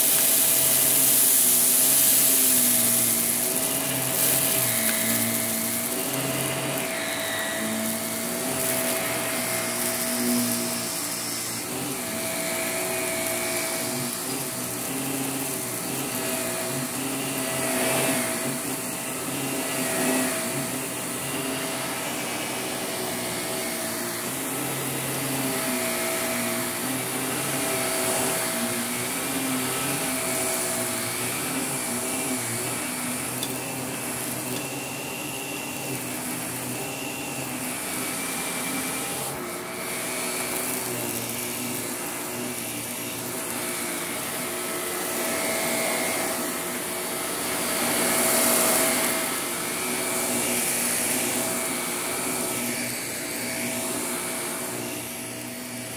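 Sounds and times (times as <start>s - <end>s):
vacuum cleaner on carpet: 0.0s - 55.9s.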